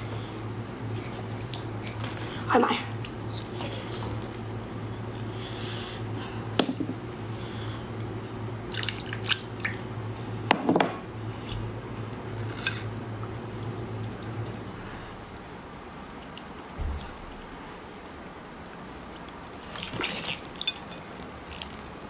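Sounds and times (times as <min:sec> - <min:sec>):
steady low hum: 0:00.0 - 0:22.0
wet squelching and dripping: 0:08.7 - 0:09.8, 0:19.3 - 0:22.0.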